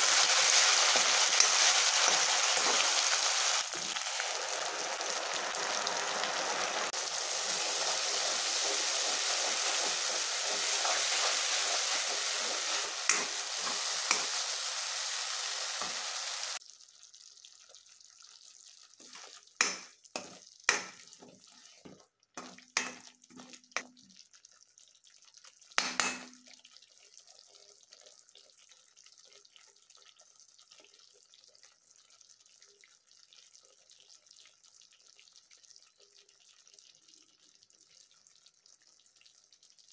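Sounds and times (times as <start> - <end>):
spoon scraping a pan: 0.0 - 4.1, 8.5 - 16.6, 19.0 - 23.9
paste sizzling in hot oil: 0.0 - 24.1.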